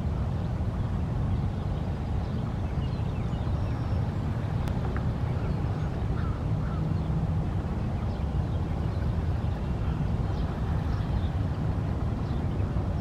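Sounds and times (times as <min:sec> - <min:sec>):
waterbird calls: 0:05.2 - 0:07.1.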